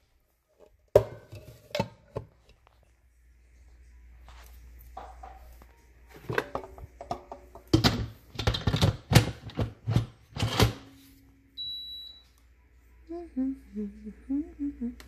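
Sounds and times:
pressure cooker beep: 0:11.6 - 0:12.3.

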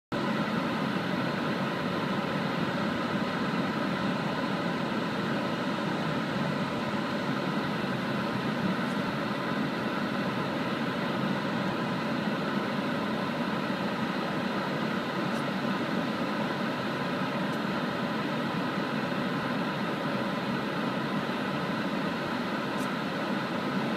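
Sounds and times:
car engine and tyre noise: 0:00.1 - 0:23.9.

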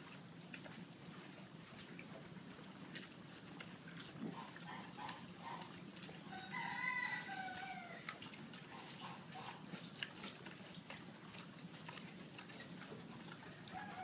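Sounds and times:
cows chewing hay: 0:00.0 - 0:14.0
rooster crowing: 0:06.3 - 0:08.0, 0:13.6 - 0:14.0.

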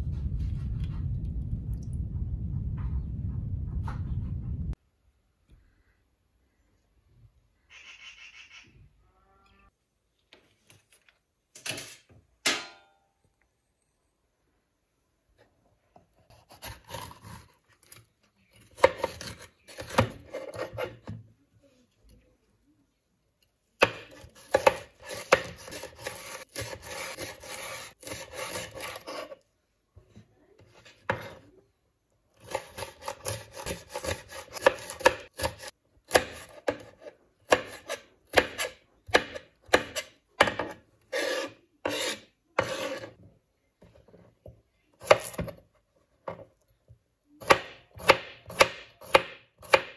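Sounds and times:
knife chopping on wooden board: 0:23.8 - 0:29.2, 0:32.4 - 0:43.1, 0:47.4 - 0:49.9.

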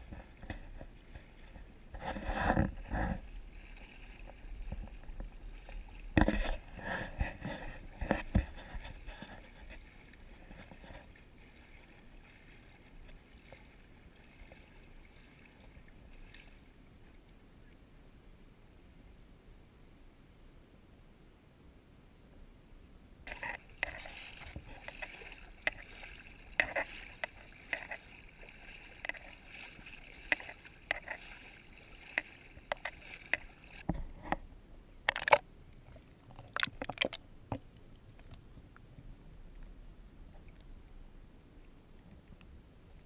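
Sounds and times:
seawater splashing: 0:00.0 - 0:17.2, 0:23.3 - 0:34.4.

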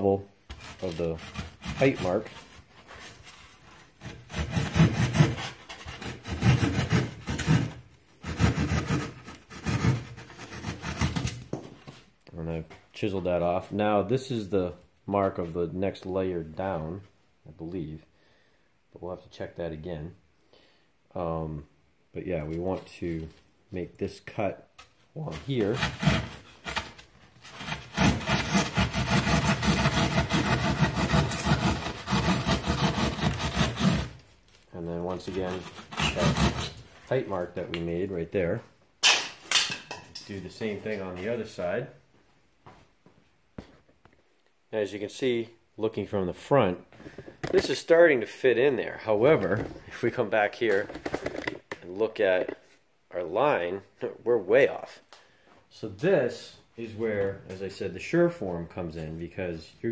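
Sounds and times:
hand saw cutting foam board: 0:00.5 - 0:03.1, 0:04.0 - 0:11.4, 0:25.3 - 0:34.2, 0:35.2 - 0:36.8.

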